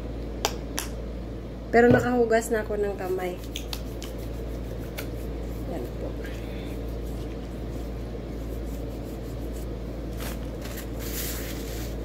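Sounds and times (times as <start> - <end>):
steady low hum: 0.0 - 12.0
hands rubbing together: 3.0 - 6.0.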